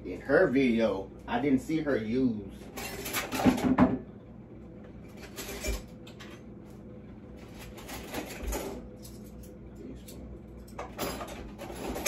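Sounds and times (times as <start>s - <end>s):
kitchen clatter: 2.6s - 4.0s, 5.1s - 6.4s, 7.6s - 9.6s, 10.6s - 12.0s.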